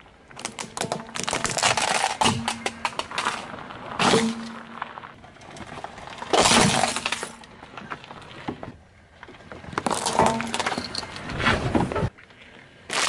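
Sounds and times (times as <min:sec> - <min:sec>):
plastic snapping under tyre: 0:00.3 - 0:08.8, 0:09.5 - 0:12.0
plastic case shattering: 0:06.3 - 0:07.4.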